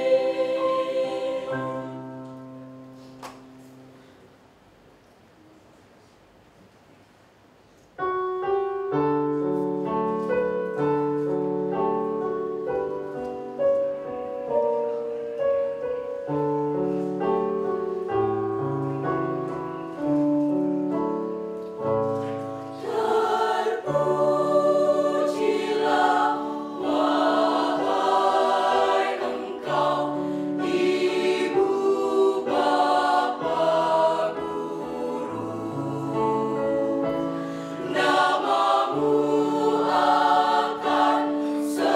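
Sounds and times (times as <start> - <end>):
choir singing in harmony: 0.0 - 2.8, 22.6 - 41.9.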